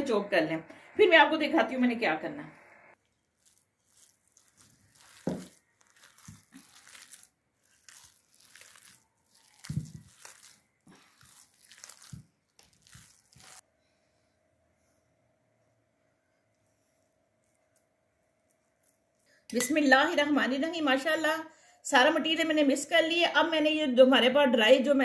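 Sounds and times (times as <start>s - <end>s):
faint hum: 0.0s - 3.0s
hand squelching food mixture: 3.0s - 13.6s.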